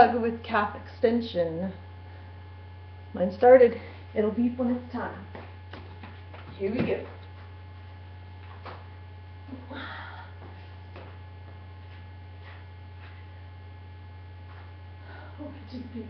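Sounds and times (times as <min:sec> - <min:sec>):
electrical mains hum: 0:00.0 - 0:16.0
faint shuffling: 0:10.4 - 0:13.4.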